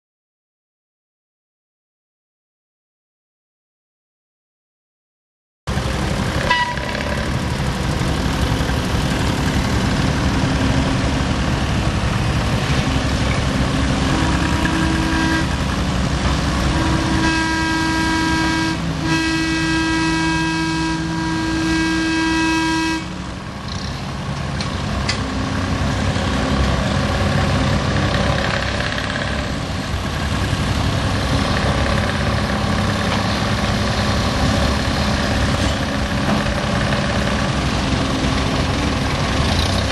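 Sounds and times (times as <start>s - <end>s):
small locomotive running on track: 5.7s - 39.9s
locomotive horn: 6.3s - 7.7s, 13.6s - 23.5s.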